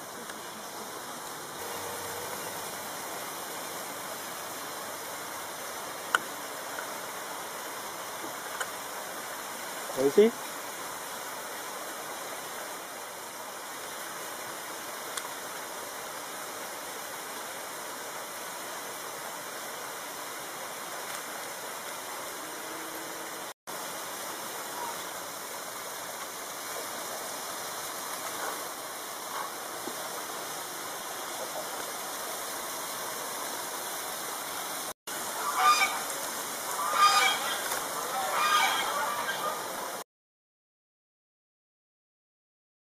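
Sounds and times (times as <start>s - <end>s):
loud honking calls: 35.4s - 36.0s, 36.8s - 39.6s.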